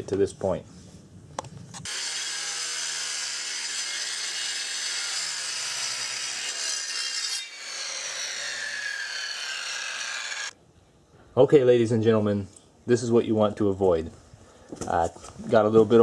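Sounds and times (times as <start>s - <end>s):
circular saw cutting stone: 1.8s - 10.6s.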